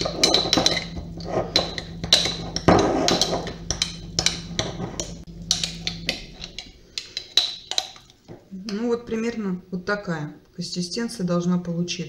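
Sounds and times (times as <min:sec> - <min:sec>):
teaspoon stirring paste in glass jar: 0:00.0 - 0:08.8.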